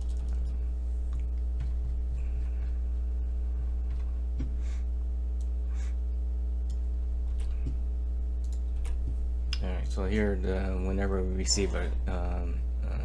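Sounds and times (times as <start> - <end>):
low electrical hum: 0.0 - 13.0
faint clicks: 8.4 - 9.7.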